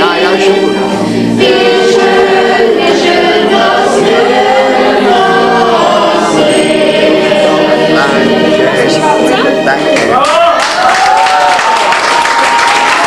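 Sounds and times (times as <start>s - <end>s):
group singing in chorus: 0.0s - 10.2s.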